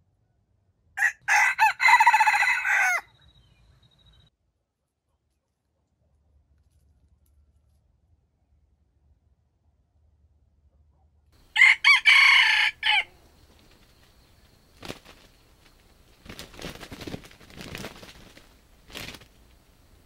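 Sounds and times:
rooster crowing: 1.0s - 3.2s, 11.4s - 13.8s
rustling: 13.1s - 20.0s.

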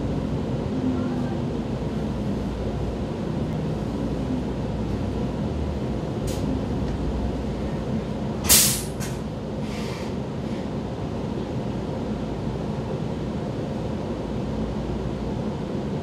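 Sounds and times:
train low rumble: 0.0s - 16.0s
air hiss: 8.4s - 10.1s.

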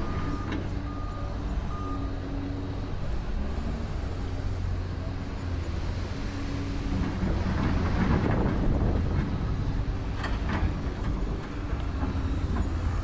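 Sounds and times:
reversing beep: 0.0s - 2.2s.

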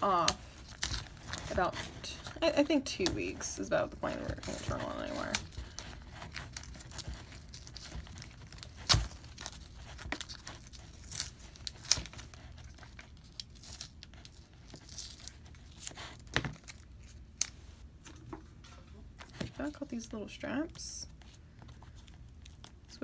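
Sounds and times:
tape ripping and crinkling: 0.0s - 17.6s.

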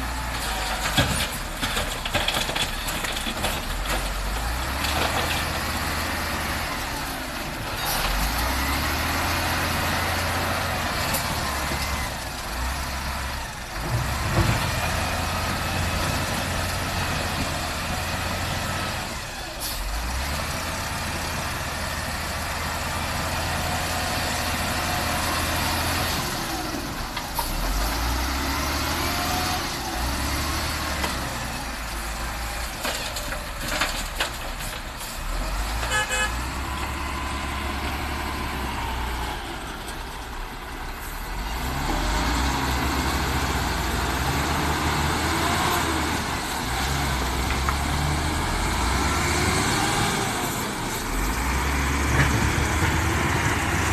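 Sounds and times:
heavy diesel engines revving: 0.0s - 53.9s
clatter: 0.3s - 5.7s, 32.6s - 35.2s.

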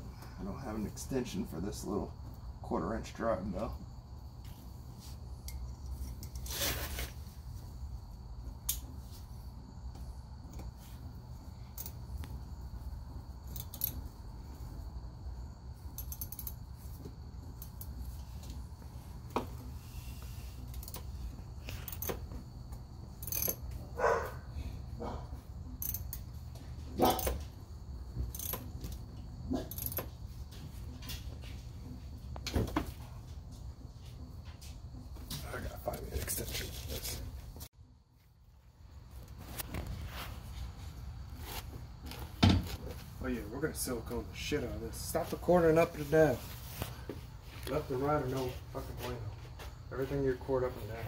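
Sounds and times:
steady low hum: 0.0s - 51.0s
metallic clicks of hand tools: 13.5s - 14.0s, 15.9s - 16.6s, 21.8s - 22.2s, 23.2s - 23.7s, 25.8s - 26.3s, 28.3s - 29.0s.

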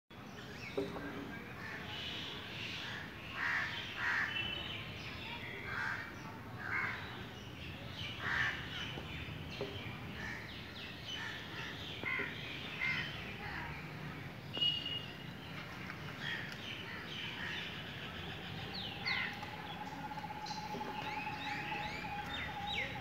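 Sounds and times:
crows cawing: 18.9s - 23.0s.

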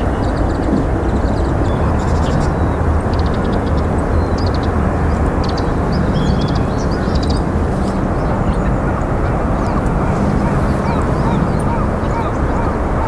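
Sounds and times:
distant waterfowl calls: 0.0s - 13.0s
small birds chirping: 0.0s - 13.0s.

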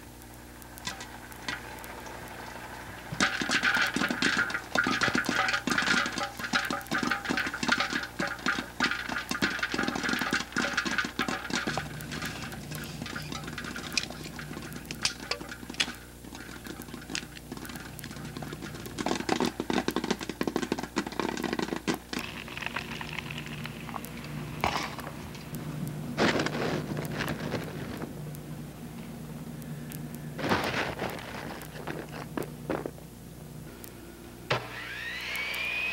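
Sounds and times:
popcorn popping: 0.0s - 35.9s.

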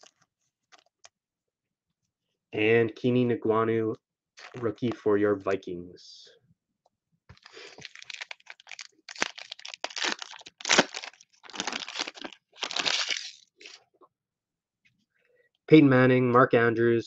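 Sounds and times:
foil wrapper crinkling and tearing: 7.3s - 13.8s.

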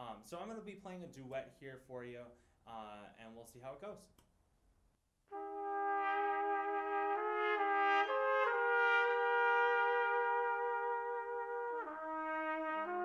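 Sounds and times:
trumpet duet in harmony: 5.3s - 13.0s.

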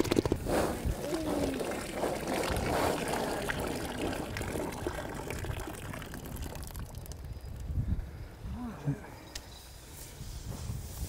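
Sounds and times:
hot ceramic pot sizzling: 1.1s - 7.4s
liquid pouring and dripping: 1.4s - 7.6s.

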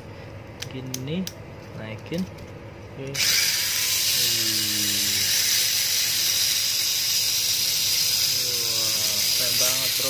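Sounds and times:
small electric motor whirring: 3.2s - 10.0s.

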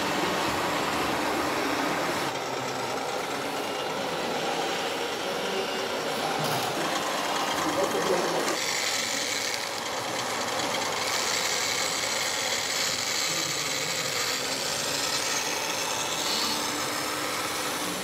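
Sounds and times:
electric motors whirring: 0.0s - 18.0s.

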